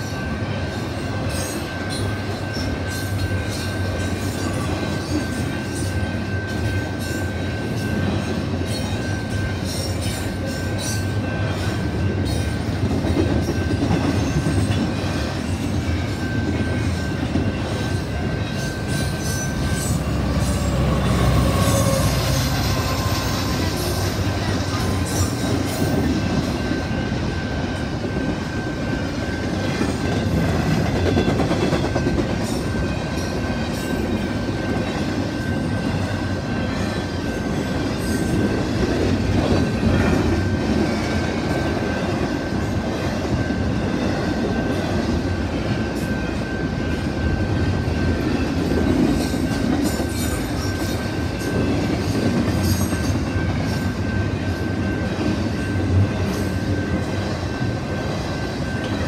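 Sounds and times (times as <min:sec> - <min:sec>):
train wheels rumbling on rails: 0:00.0 - 0:59.0
thin high tone: 0:18.0 - 0:25.4.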